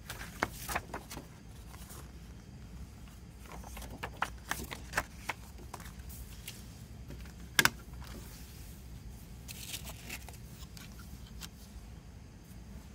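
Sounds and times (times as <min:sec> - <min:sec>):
paper rustling: 0:00.0 - 0:02.4, 0:03.0 - 0:08.6, 0:09.4 - 0:11.7.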